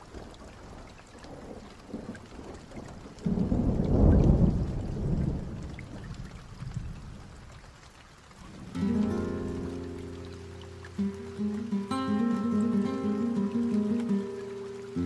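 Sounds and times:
light rain: 0.0s - 15.0s
thunder rumble: 1.4s - 7.5s.

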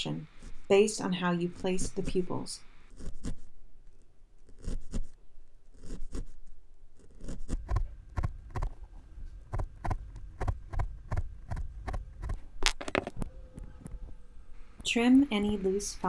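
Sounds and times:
felting needle thumps: 7.2s - 14.1s.

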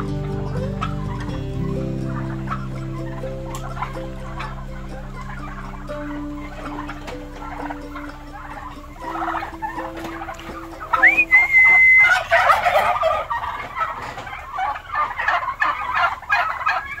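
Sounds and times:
turkeys gobbling: 0.0s - 17.0s
high whistle-like tone: 11.0s - 12.4s.

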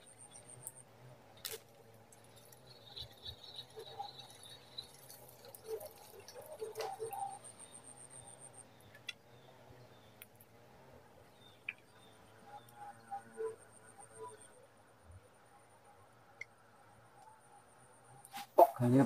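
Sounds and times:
birds chirping: 2.0s - 16.8s
high-pitched insect whine: 2.2s - 8.6s
warbling bird trill: 2.2s - 8.6s.

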